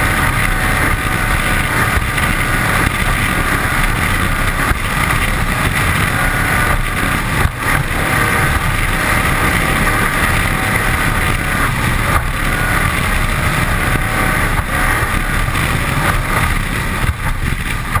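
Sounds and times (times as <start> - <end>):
powerboat engine running: 0.0 - 18.0
wind rush on microphone: 0.0 - 18.0.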